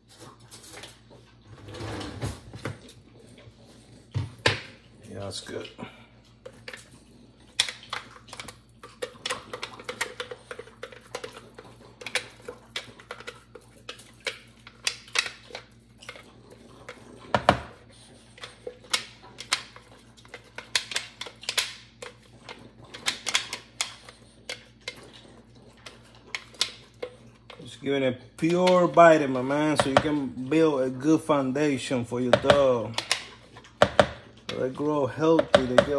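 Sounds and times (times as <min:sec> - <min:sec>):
plastic knocking on plastic: 0:17.3 - 0:17.8, 0:32.3 - 0:32.7, 0:33.8 - 0:34.2, 0:35.3 - 0:35.9.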